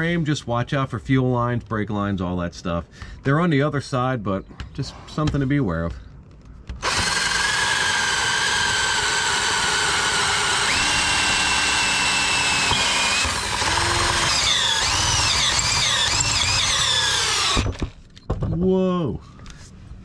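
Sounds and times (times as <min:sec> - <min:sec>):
power drill drilling into steel: 0:06.8 - 0:18.0.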